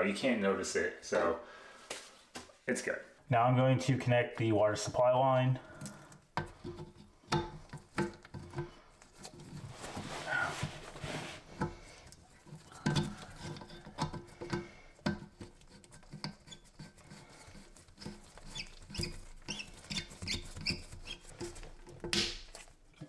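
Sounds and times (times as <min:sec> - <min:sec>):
short high squeaks: 0:18.4 - 0:21.3.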